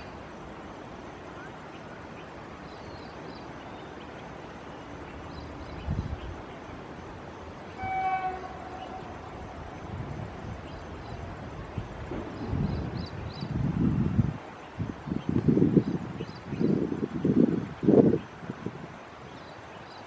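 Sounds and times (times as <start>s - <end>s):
wind rumble on microphone: 5.2s - 7.1s, 7.8s - 19.8s
locomotive horn blast: 7.7s - 9.7s.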